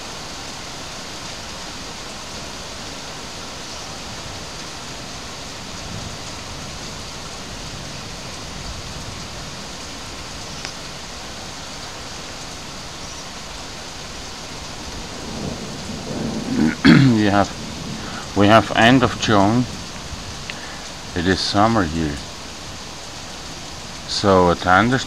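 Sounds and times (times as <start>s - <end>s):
heavy rain: 0.0s - 25.0s
low rumble of thunder: 5.0s - 10.4s, 14.6s - 22.4s.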